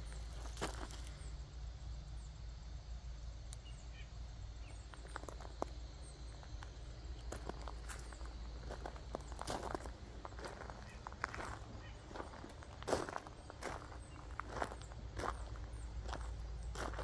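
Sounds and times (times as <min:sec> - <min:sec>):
footsteps on mulch and gravel: 0:00.0 - 0:01.4, 0:04.8 - 0:17.0
faint chirps: 0:00.0 - 0:17.0.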